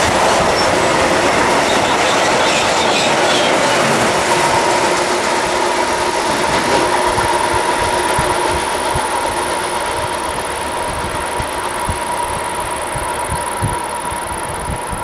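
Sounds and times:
freight train wheels rolling: 0.0s - 15.0s
steady high whine: 0.0s - 15.0s.

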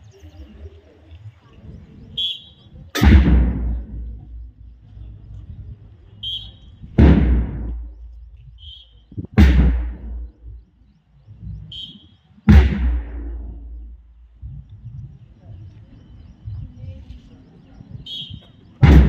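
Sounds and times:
deep drum beats over loudspeaker: 2.9s - 5.6s, 6.8s - 8.5s, 9.2s - 10.8s, 12.5s - 15.2s, 18.8s - 19.0s.

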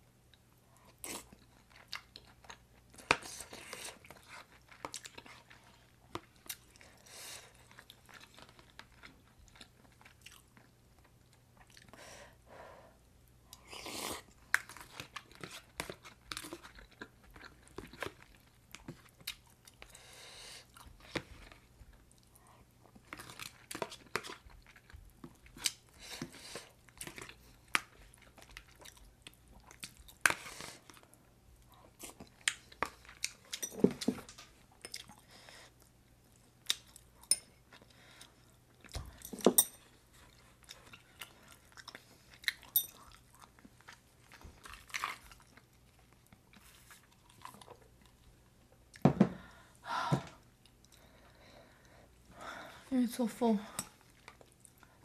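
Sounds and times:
chewing and wet mouth noises: 0.3s - 12.0s, 13.5s - 49.0s, 50.4s - 52.4s, 53.7s - 55.0s.

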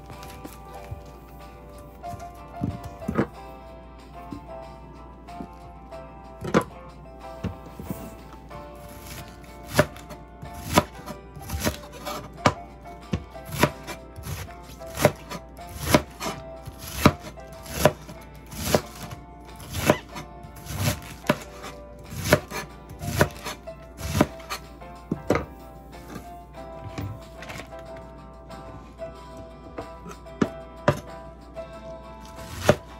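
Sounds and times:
knife chopping on cutting board: 2.1s - 3.4s, 6.4s - 6.8s, 8.9s - 25.5s, 30.4s - 31.1s, 32.2s - 32.9s.

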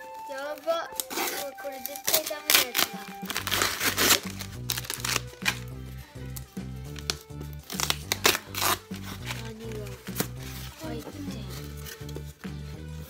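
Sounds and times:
paper ripping and crinkling: 0.0s - 12.7s
tape being torn off: 0.9s - 12.5s
background music with bass line: 3.0s - 13.0s.

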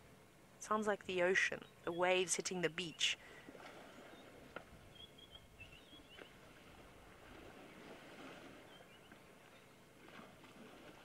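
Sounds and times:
water splashing and sloshing: 3.1s - 11.0s
bird chirps: 4.9s - 6.3s.

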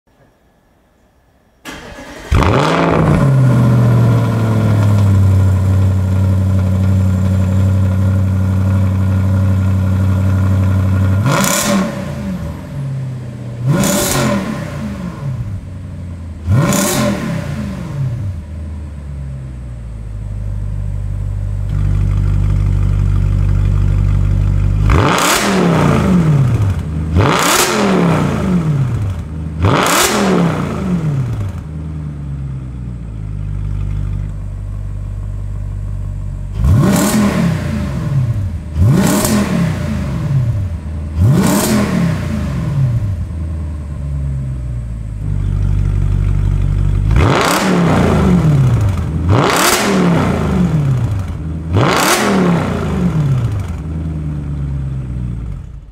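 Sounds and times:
car engine idling and revving: 1.7s - 55.9s.

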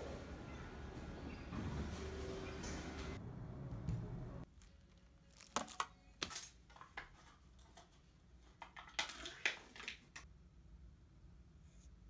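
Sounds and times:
plastic packaging crinkling and tearing: 4.5s - 5.9s.

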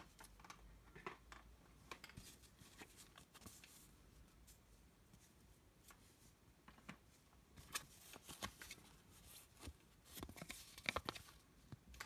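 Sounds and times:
paper cards rustling: 7.6s - 11.4s.

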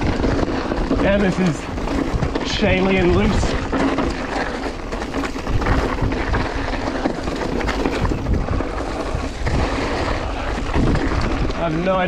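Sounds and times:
bike clattering: 0.0s - 12.0s
bike tyres crunching on stones: 0.0s - 12.0s
wind buffeting microphone: 0.0s - 12.0s.

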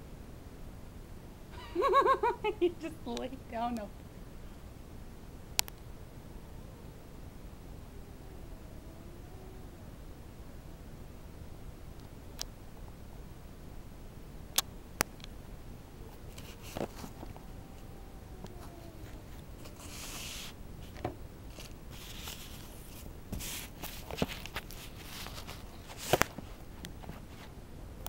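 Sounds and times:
sharp clicks: 5.5s - 5.9s
rustling and shuffling: 14.7s - 27.7s.

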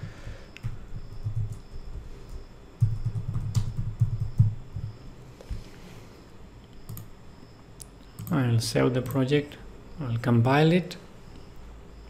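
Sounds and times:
computer keyboard typing: 0.6s - 5.0s, 6.9s - 7.1s, 8.2s - 8.4s.

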